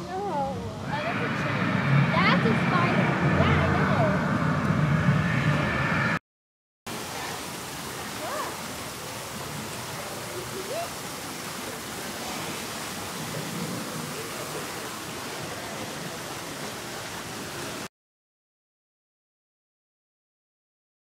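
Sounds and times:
faint voices: 0.0 - 5.6
water rushing in a channel: 0.0 - 5.6, 6.9 - 17.9.

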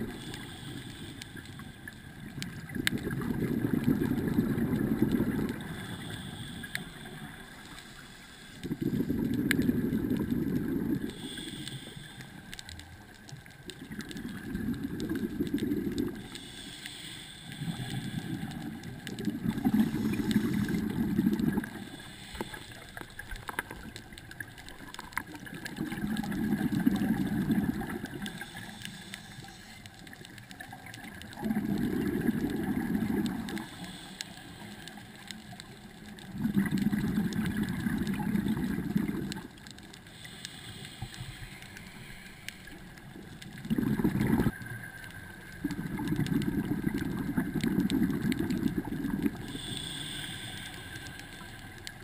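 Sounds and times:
exhaled bubbles rumbling: 0.0 - 0.4, 1.5 - 7.7, 8.6 - 11.4, 13.4 - 16.3, 17.6 - 22.6, 23.2 - 28.6, 30.1 - 33.7, 35.6 - 40.0, 41.8 - 49.7
regulator hissing inhale: 0.0 - 2.3, 4.2 - 12.8, 15.6 - 24.0, 26.0 - 30.4, 32.3 - 35.7, 38.4 - 43.4, 49.3 - 52.0.

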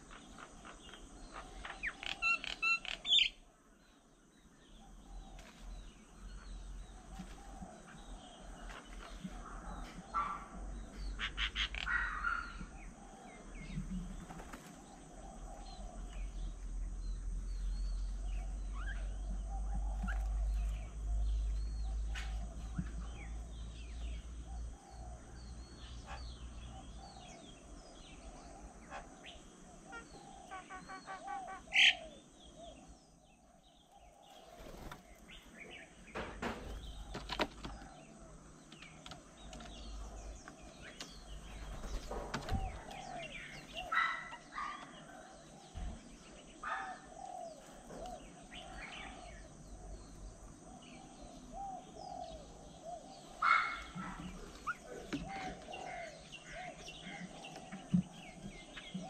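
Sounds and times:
repeated lower bird call: 0.0 - 3.4, 28.2 - 33.2
loud sharp bird calls: 0.0 - 3.5, 9.8 - 16.3, 17.7 - 59.0
birds chirping and calling: 0.0 - 59.0.

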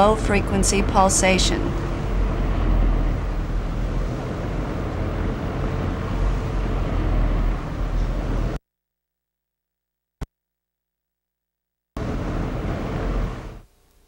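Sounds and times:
electric fan blowing air: 0.0 - 8.6, 12.0 - 14.0.

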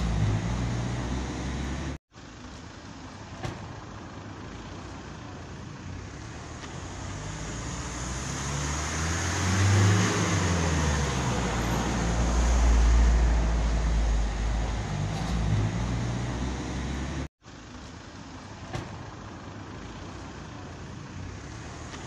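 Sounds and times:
vehicle engine passing: 0.0 - 2.0, 5.3 - 17.3
steady street hiss: 0.0 - 9.6, 10.5 - 22.0.

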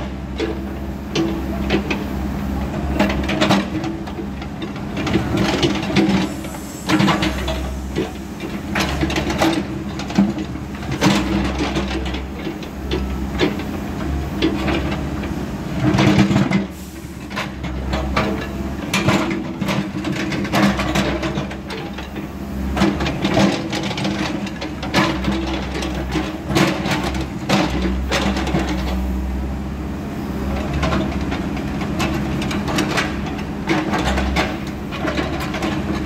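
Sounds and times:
diesel engine under load: 0.0 - 36.0.

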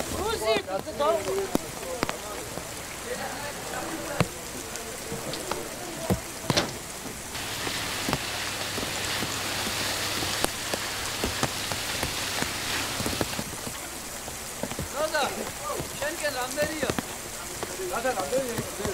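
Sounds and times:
hose spraying water on deck: 0.0 - 18.9
sharp knocks and clicks: 5.4 - 7.2.

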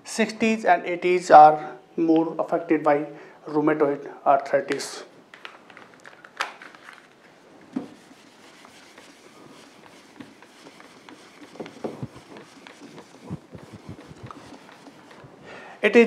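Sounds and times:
duster rubbing whiteboard: 7.8 - 15.4.

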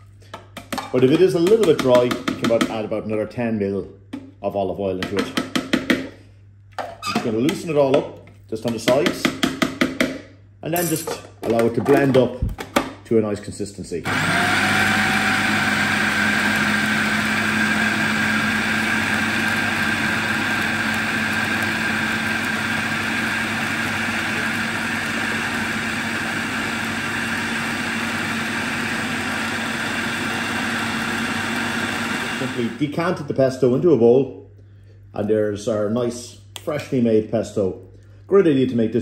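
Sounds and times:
food processor whirring: 14.1 - 32.8.

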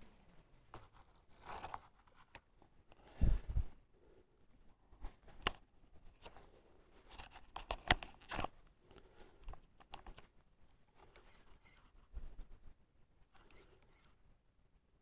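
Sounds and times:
clothing rustling: 0.2 - 3.7.

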